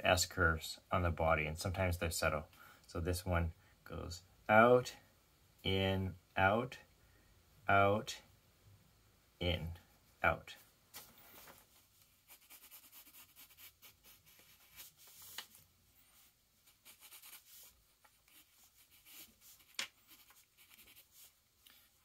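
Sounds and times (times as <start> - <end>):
pencil sketching on paper: 12.3 - 15.1, 16.7 - 17.7, 18.3 - 21.4.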